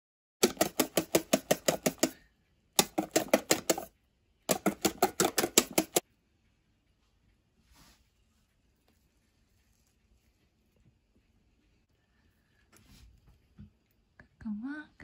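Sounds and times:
whisk clicking against metal bowl: 0:00.4 - 0:02.2, 0:02.8 - 0:03.9, 0:04.5 - 0:06.0.

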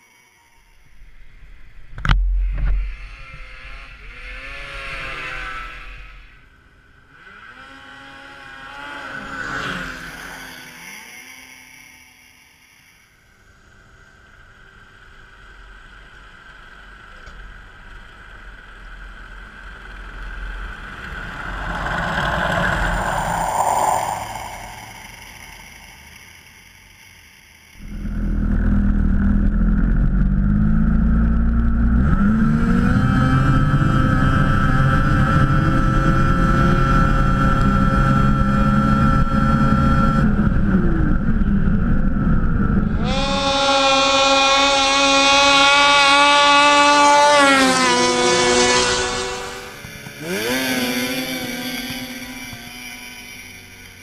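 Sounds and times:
snowmobile engine running: 0:18.0 - 0:26.5, 0:27.8 - 0:54.0
tractor passing by: 0:18.2 - 0:27.1, 0:42.5 - 0:54.0.

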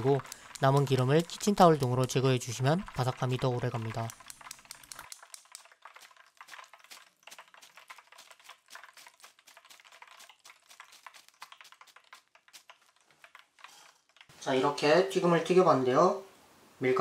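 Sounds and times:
frying oil crackling: 0:00.0 - 0:14.4.

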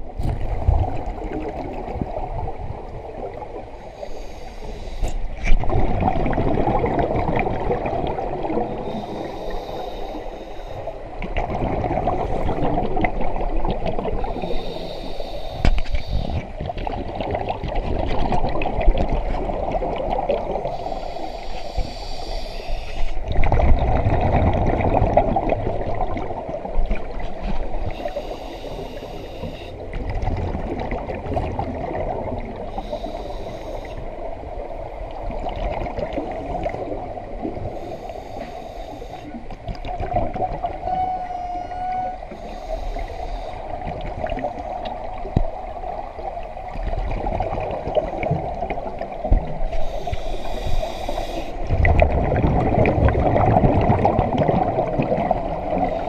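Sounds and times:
exhaled bubbles gurgling: 0:00.0 - 0:56.0
regulator hissing inhalation: 0:03.9 - 0:05.3, 0:08.8 - 0:11.0, 0:14.2 - 0:16.5, 0:20.7 - 0:23.2, 0:27.9 - 0:29.8, 0:32.7 - 0:34.0, 0:37.8 - 0:39.4, 0:42.3 - 0:43.7, 0:49.7 - 0:51.6.

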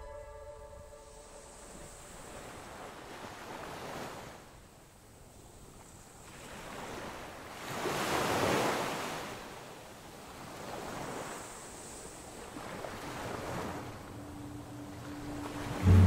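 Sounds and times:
surf breaking on a sandy beach: 0:05.6 - 0:14.4.

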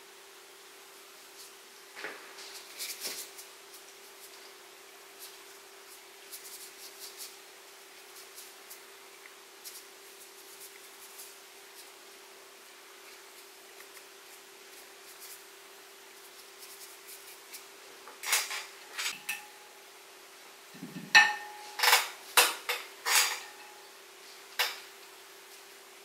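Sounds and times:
faint steady hum: 0:00.0 - 0:26.0
brush clinking against ceramic dish: 0:21.1 - 0:21.8.

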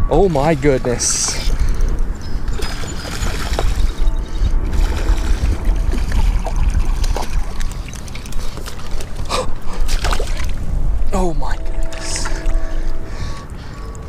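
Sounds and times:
wind rumble on microphone: 0:00.0 - 0:14.0
fish splashing in water: 0:02.6 - 0:04.0, 0:04.7 - 0:10.6.

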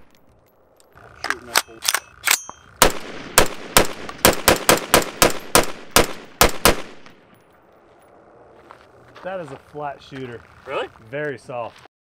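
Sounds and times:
rapid gunshots: 0:02.8 - 0:07.0.

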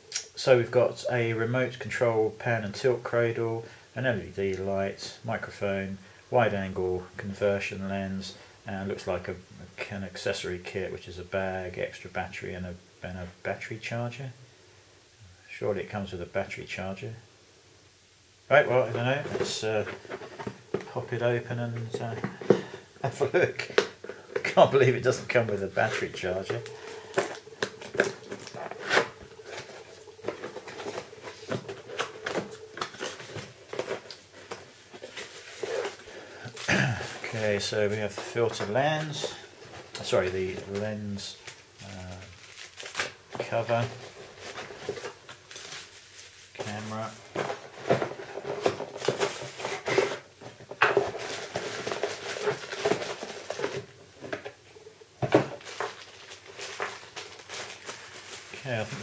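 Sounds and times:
faint steady hum: 0:00.0 - 0:59.0
packaging clicks and rustles: 0:18.8 - 0:54.6, 0:55.2 - 0:59.0.

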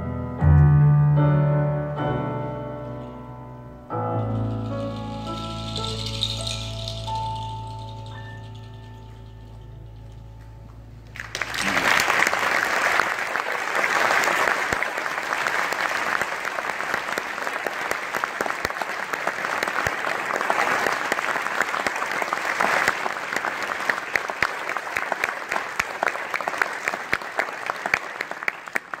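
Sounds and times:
audience applauding: 0:11.1 - 0:29.0.

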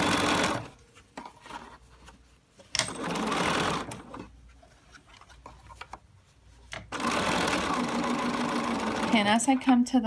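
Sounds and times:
sewing machine stitching: 0:00.0 - 0:00.7, 0:02.8 - 0:04.2, 0:06.9 - 0:09.4.

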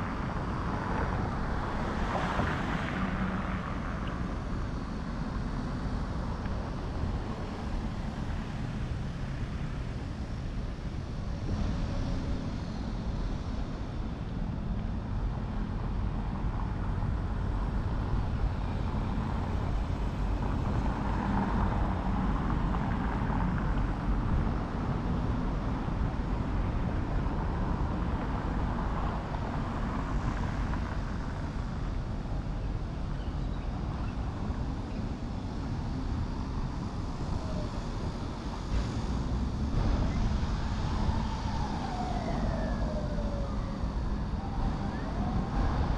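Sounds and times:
city traffic rumble: 0:00.0 - 0:45.9.

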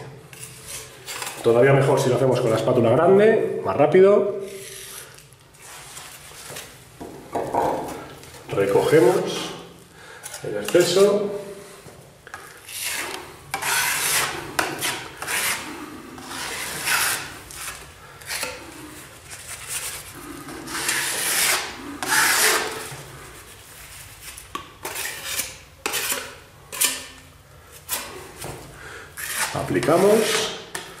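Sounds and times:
putty knife scraping wall: 0:12.4 - 0:23.1, 0:24.5 - 0:27.2, 0:29.2 - 0:31.0.

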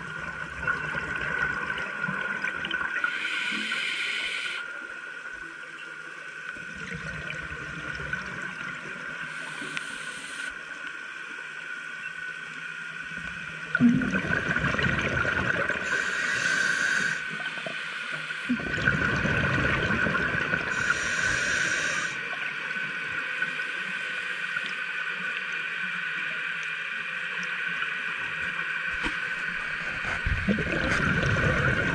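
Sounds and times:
scuba exhalation bubbles gurgling: 0:00.0 - 0:03.1, 0:13.7 - 0:17.2, 0:18.4 - 0:22.1, 0:30.0 - 0:31.9
underwater hum: 0:00.0 - 0:31.9.

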